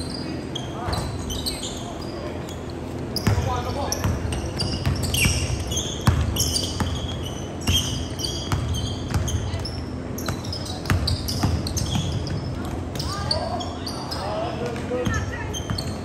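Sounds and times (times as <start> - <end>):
sneakers squeaking: 0.0 - 16.0
basketball bouncing on hardwood floor: 3.2 - 13.1.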